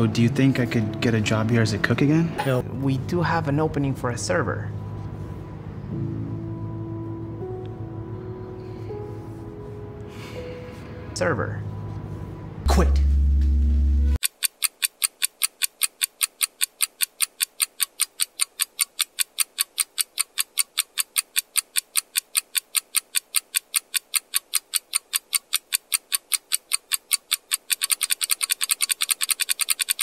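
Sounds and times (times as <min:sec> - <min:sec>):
rapid clock ticking: 0:14.2 - 0:30.0.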